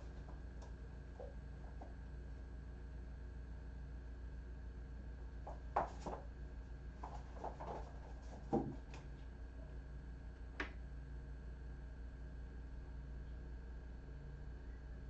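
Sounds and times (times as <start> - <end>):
steady low hum: 0.0 - 15.0
kittens tapping and knocking: 5.4 - 6.2, 7.0 - 9.1.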